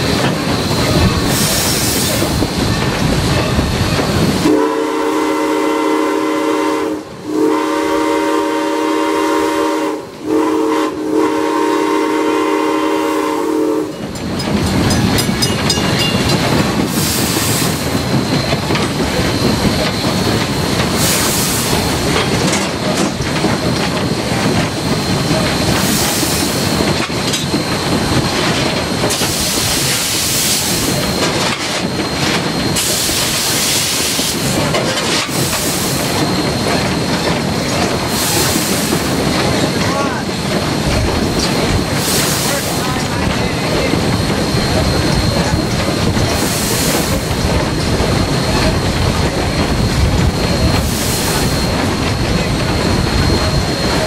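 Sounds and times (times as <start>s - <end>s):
train wheels clattering on rails: 0.0s - 11.5s, 13.3s - 54.0s
steam locomotive whistle: 4.3s - 14.1s.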